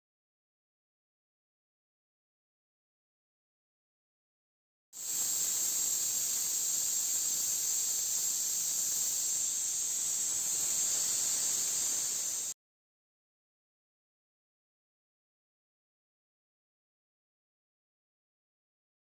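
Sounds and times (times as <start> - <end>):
pressure cooker steam hissing: 5.0 - 12.6.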